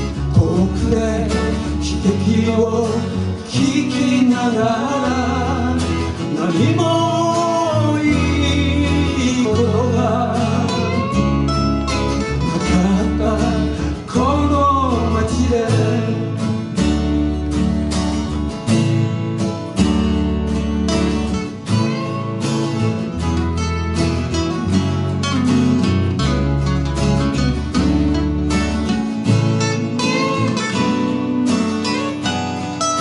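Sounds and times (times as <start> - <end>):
man singing: 0.0 - 16.9, 29.2 - 33.0
acoustic guitars strumming: 0.0 - 33.0.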